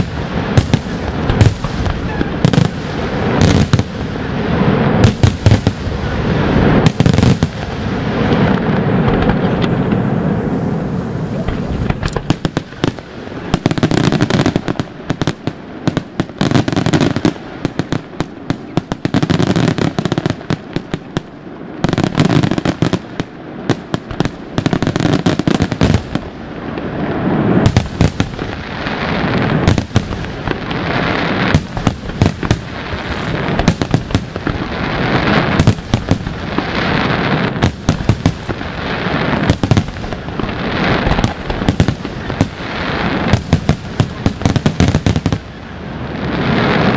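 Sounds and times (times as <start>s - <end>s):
fireworks bangs: 0.0s - 46.9s
fireworks crackling hiss: 0.0s - 46.9s.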